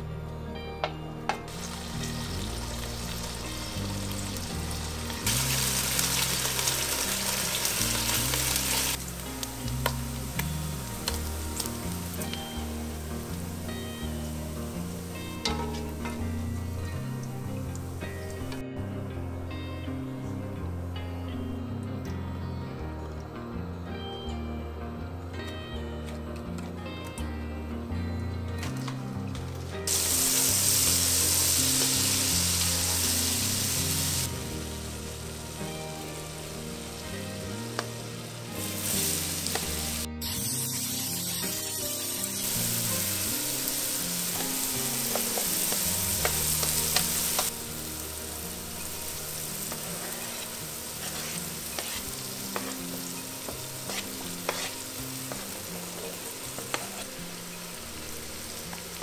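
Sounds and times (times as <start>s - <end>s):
soft background music: 0.0s - 59.0s
vegetables sizzling in pot: 1.5s - 18.7s, 29.6s - 59.0s.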